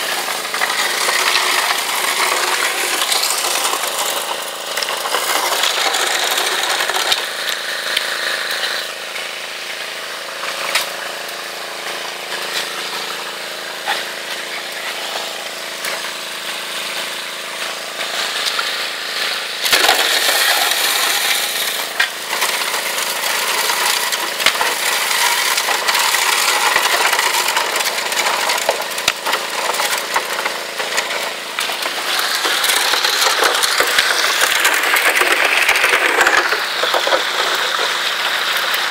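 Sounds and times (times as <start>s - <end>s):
gravel and rocks clattering: 0.0s - 8.1s, 19.7s - 38.9s
small pump engine hum: 0.0s - 38.9s
water rushing over sluice: 0.0s - 38.9s.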